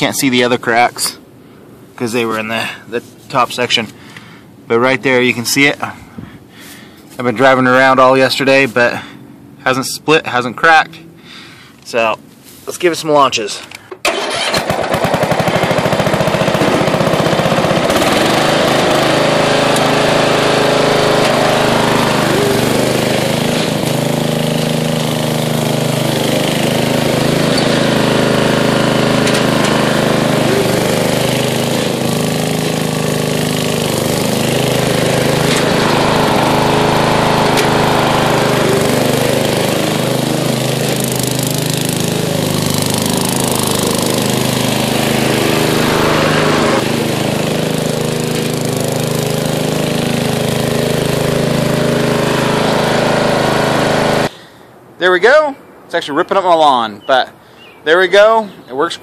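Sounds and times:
riding mower engine running: 0:13.6 - 0:54.4.

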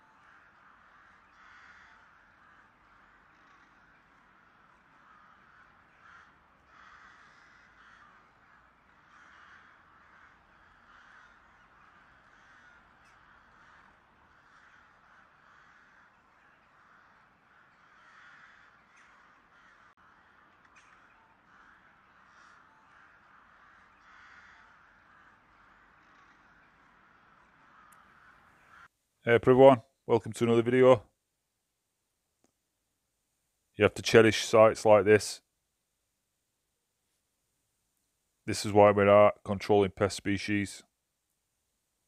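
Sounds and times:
crows cawing: 0:00.0 - 0:29.0.

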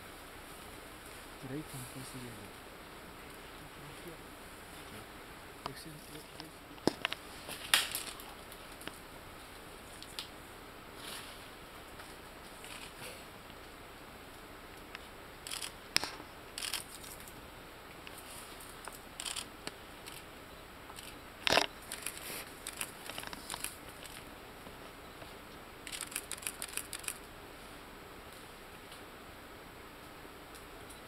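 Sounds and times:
stems snapping and tearing: 0:06.4 - 0:09.0, 0:10.0 - 0:10.3, 0:21.0 - 0:24.2, 0:25.9 - 0:27.2.

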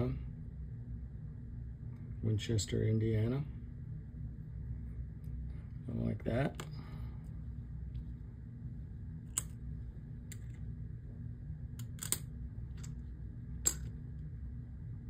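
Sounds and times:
steady low hum: 0:00.0 - 0:15.0
coins clicking and tapping: 0:11.8 - 0:13.0, 0:13.6 - 0:13.9.

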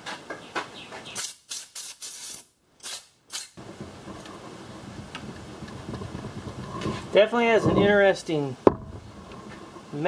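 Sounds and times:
compressed air blasts: 0:01.2 - 0:03.6
steady rustling noise: 0:03.6 - 0:10.0.

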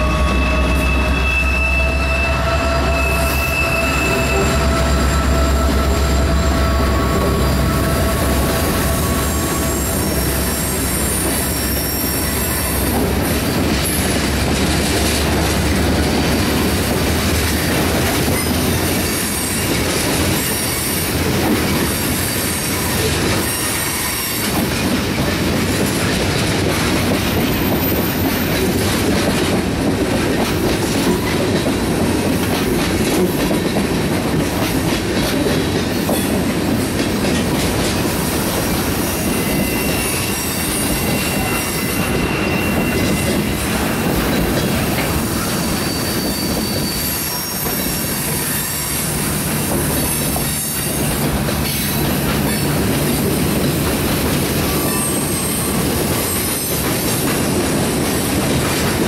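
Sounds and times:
high wheel squeal: 0:00.0 - 0:14.4, 0:15.1 - 0:26.1, 0:26.9 - 0:28.9, 0:38.0 - 0:57.8
train wheels clacking over rail joints: 0:03.9 - 0:59.0.

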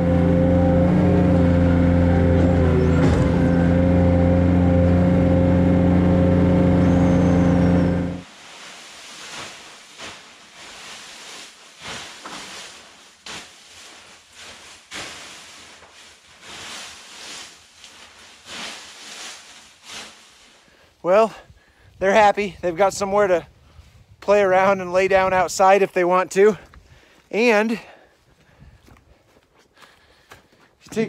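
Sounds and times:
loader engine running: 0:00.0 - 0:08.2
dry bedding rustling swishes: 0:08.2 - 0:20.8.

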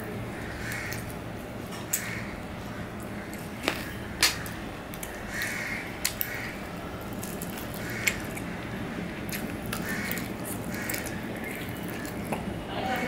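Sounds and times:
crows cawing: 0:00.3 - 0:01.1, 0:01.9 - 0:03.4, 0:04.3 - 0:06.7, 0:07.7 - 0:08.7, 0:09.8 - 0:12.1.

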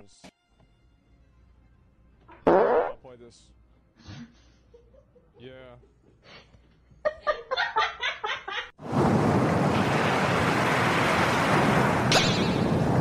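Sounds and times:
sea waves breaking: 0:08.8 - 0:13.0.

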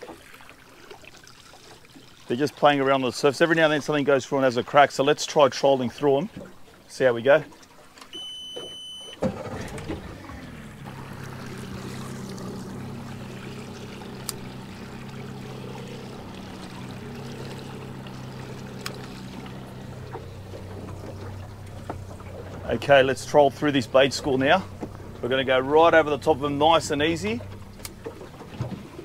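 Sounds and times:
outboard motor running: 0:08.1 - 0:29.0.

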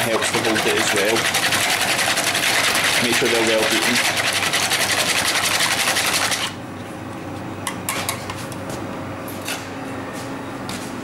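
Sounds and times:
whisk beating eggs in a bowl: 0:00.0 - 0:06.6.

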